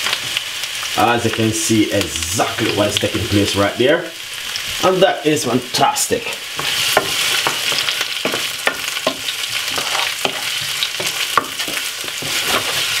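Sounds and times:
vegetables sizzling in frying pan: 0:00.0 - 0:13.0
wooden spoon scraping pan: 0:06.6 - 0:13.0.

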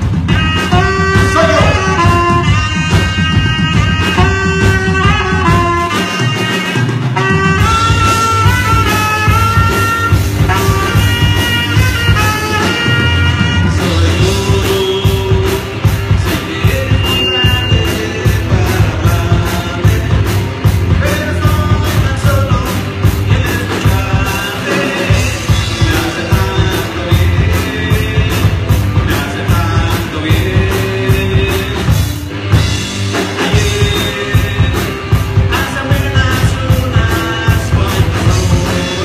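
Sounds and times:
drum kit: 0:00.0 - 0:39.0
electric guitars: 0:00.0 - 0:39.0
saxophone: 0:00.1 - 0:16.0.

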